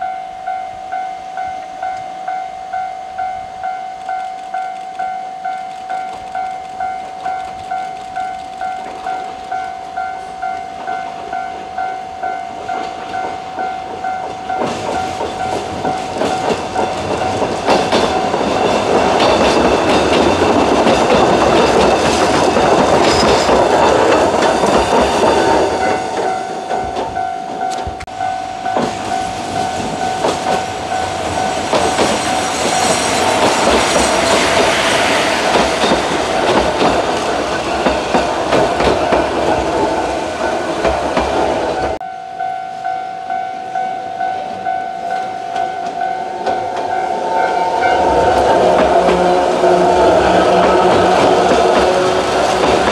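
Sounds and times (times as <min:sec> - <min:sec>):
level crossing bell ringing: 0:00.0 - 0:18.6, 0:25.4 - 0:31.7, 0:41.9 - 0:50.1
electric train running on rails: 0:00.0 - 0:52.9.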